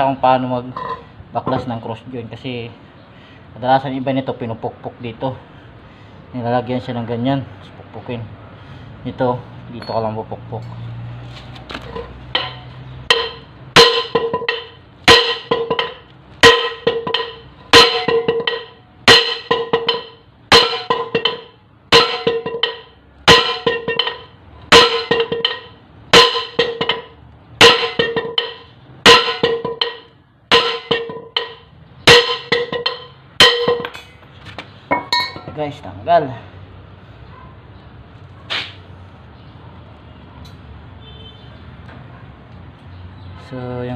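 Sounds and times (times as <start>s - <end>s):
hammer striking steel: 11.9s - 34.2s.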